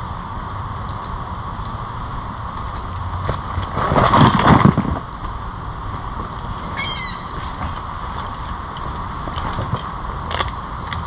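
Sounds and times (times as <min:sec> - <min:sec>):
outdoor background noise: 0:00.0 - 0:11.0
short high falling call: 0:06.8 - 0:07.4.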